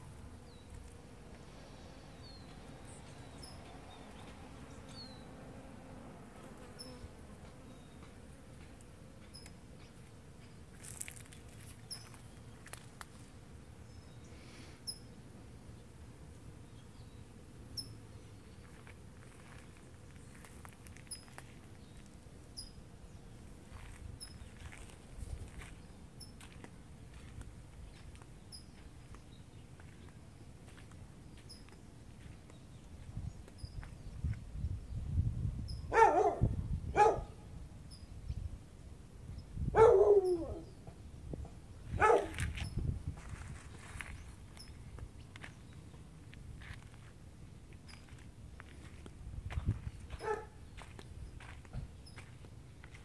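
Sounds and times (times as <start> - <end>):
small bird chirping: 11.8 - 12.8, 20.2 - 22.8
wind rumble on microphone: 23.7 - 25.9, 32.2 - 45.5, 48.8 - 52.3
dog barking: 35.9 - 37.4, 39.8 - 40.6, 42.0 - 42.4, 50.2 - 50.6.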